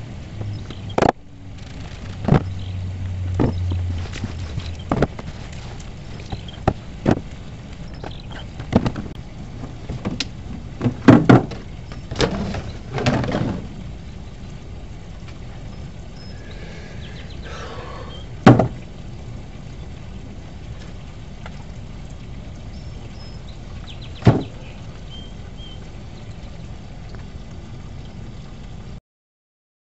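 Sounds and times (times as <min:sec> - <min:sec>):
plastic tub knocking: 0:03.4 - 0:05.4, 0:08.0 - 0:09.2, 0:10.8 - 0:13.7, 0:18.5 - 0:18.8, 0:24.2 - 0:24.6.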